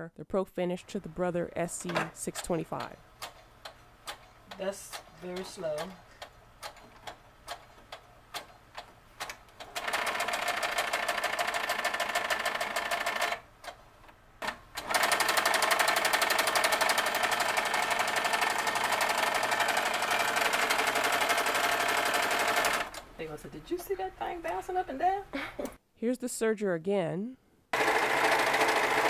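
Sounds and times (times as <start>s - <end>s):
sewing machine stitching: 9.2s - 13.5s, 14.4s - 23.0s, 27.8s - 29.0s.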